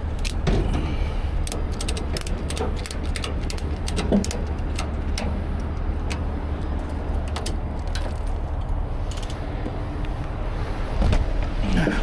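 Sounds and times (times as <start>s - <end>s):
steady low rumble: 0.0s - 12.0s
ratchet strap clicks and rattles: 0.1s - 0.4s, 1.4s - 9.4s.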